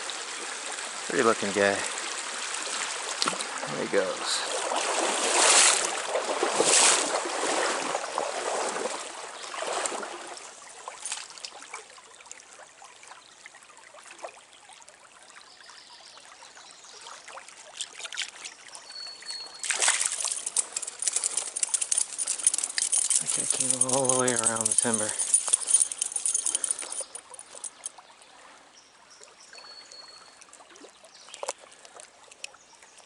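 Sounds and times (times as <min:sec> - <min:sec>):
stream water trickling and splashing: 0:00.0 - 0:33.0
rustling clicking noise: 0:19.6 - 0:27.9
small ticks: 0:19.6 - 0:27.9, 0:31.2 - 0:33.0.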